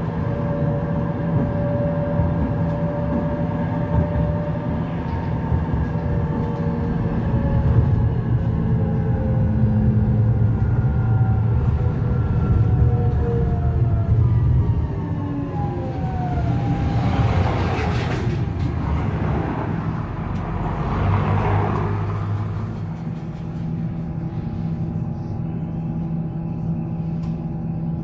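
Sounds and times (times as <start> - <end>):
tram electric drive whining: 0.0 - 28.0
low hum: 22.0 - 28.0.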